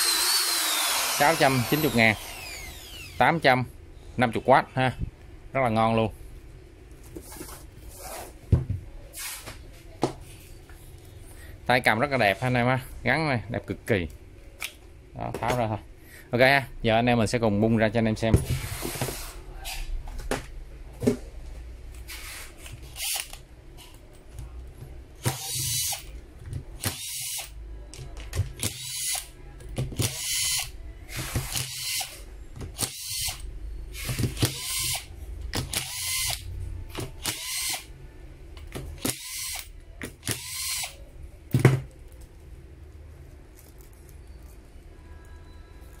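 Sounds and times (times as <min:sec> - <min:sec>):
cordless screwdriver running: 0:00.0 - 0:03.2, 0:30.0 - 0:30.7, 0:34.4 - 0:35.1, 0:35.7 - 0:36.4, 0:37.2 - 0:37.9, 0:39.1 - 0:41.0.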